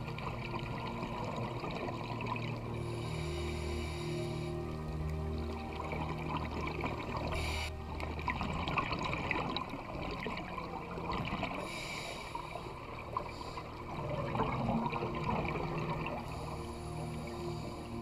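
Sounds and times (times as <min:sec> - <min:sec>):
underwater bubbles gurgling: 0:00.0 - 0:18.0
regulator breathing hiss: 0:02.9 - 0:04.6, 0:07.4 - 0:07.7, 0:11.6 - 0:13.8.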